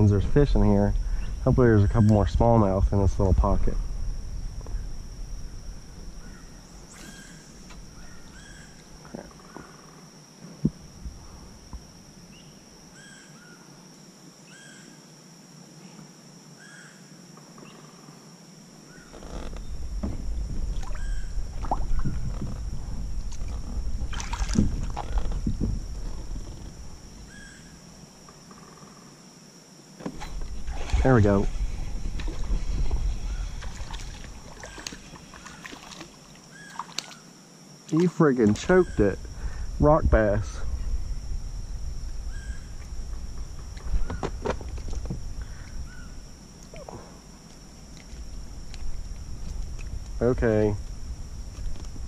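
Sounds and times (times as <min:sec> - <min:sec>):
low rumble: 0:00.0 - 0:06.9, 0:19.4 - 0:27.3, 0:30.3 - 0:34.6, 0:38.9 - 0:46.5
high insect drone: 0:00.0 - 0:52.0
knocks and splashes: 0:20.0 - 0:22.6, 0:23.3 - 0:25.8, 0:33.6 - 0:37.2.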